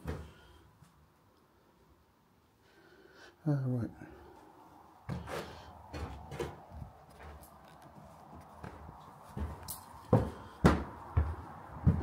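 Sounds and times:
footsteps in empty building: 5.0s - 12.0s.

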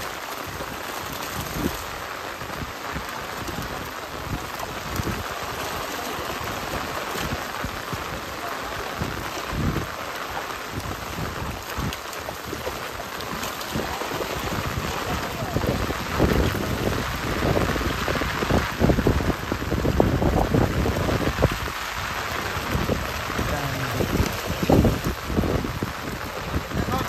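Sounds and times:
fish thrashing in water: 3.1s - 18.0s.

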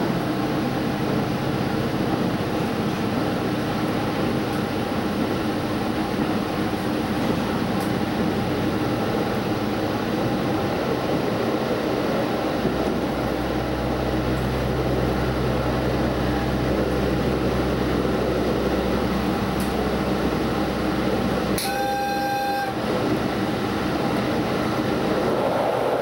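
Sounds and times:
train engine drone: 0.0s - 26.0s
wheel and track noise: 0.0s - 26.0s
train horn blast: 21.6s - 22.9s.

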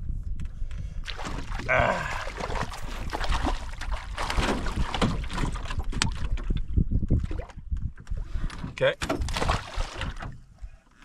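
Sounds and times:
wind buffeting microphone: 0.0s - 10.8s
waves slapping against canoe hull: 1.0s - 10.6s.

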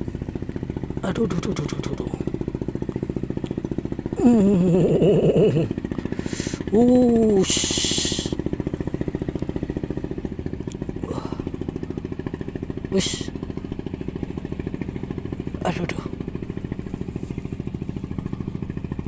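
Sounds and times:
small engine running: 0.0s - 19.0s
man grunting with effort: 4.2s - 8.4s, 11.0s - 11.6s
man hissing out breath: 6.1s - 6.7s.

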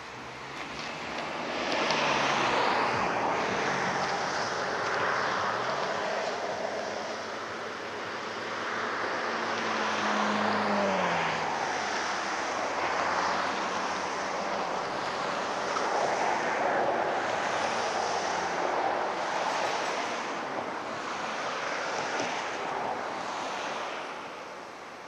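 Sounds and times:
train wheels rushing on rail: 18.6s - 20.6s.

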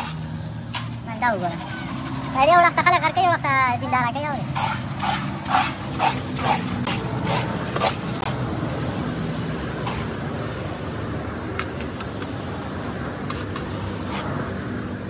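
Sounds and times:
concrete mixer motor humming: 1.1s - 8.3s.

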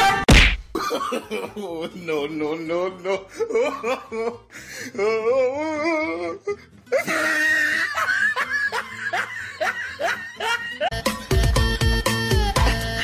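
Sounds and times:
quiet background music: 0.8s - 11.5s
person laughing: 3.0s - 11.0s
loud rhythmic music: 10.9s - 13.0s.

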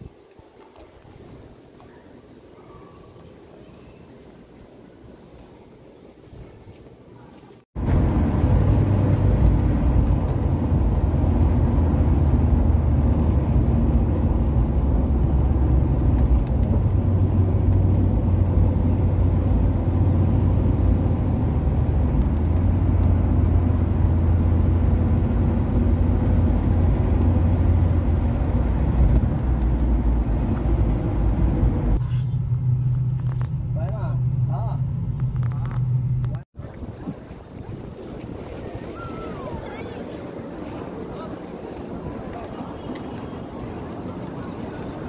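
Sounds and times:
car engine and road rumble: 7.8s - 36.5s.

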